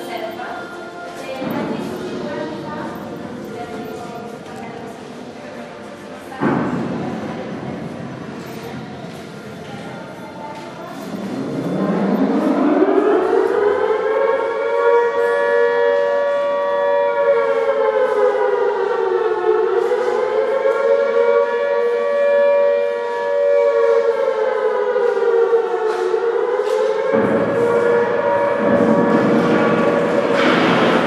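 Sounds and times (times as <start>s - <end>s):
air-raid siren wailing: 0.0s - 4.4s, 10.9s - 31.0s.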